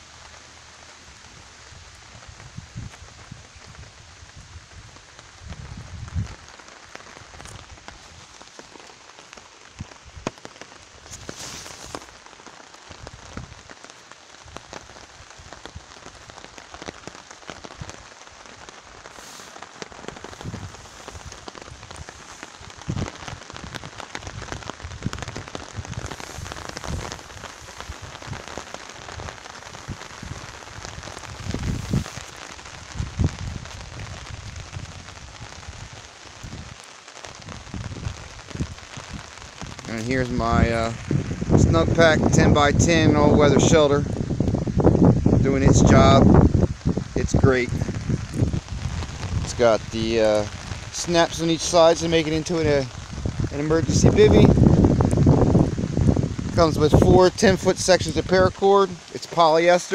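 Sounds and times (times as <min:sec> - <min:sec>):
rain on a tarp: 0:00.0 - 0:59.9.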